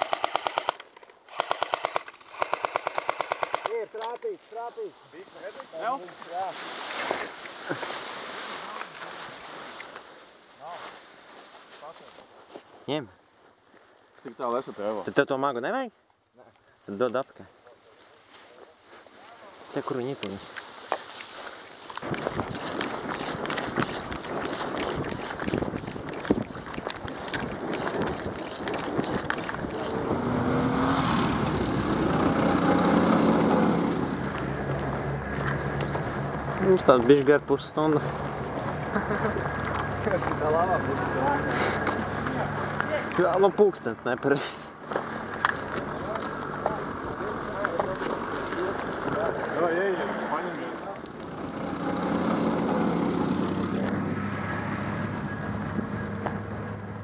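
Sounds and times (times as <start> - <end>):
footsteps on gravel: 18.2 - 30.2, 34.1 - 36.8
vehicle engine approaching: 22.0 - 57.0.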